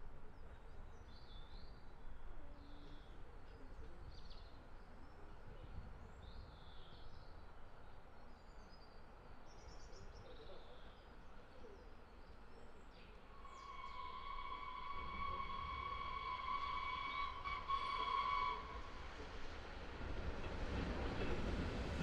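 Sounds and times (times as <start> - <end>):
steam locomotive whistle: 13.4 - 19.0.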